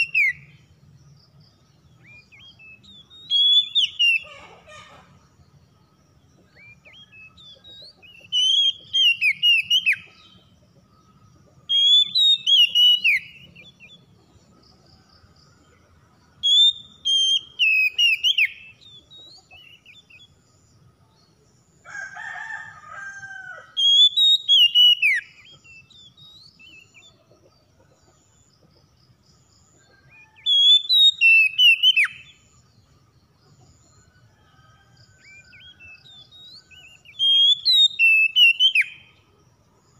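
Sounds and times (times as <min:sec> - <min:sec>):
bird singing whistled phrases: 0:00.0 - 0:00.5, 0:02.0 - 0:04.3, 0:06.6 - 0:10.0, 0:11.7 - 0:13.9, 0:16.4 - 0:19.3, 0:23.8 - 0:26.9, 0:30.3 - 0:32.4, 0:35.3 - 0:39.0.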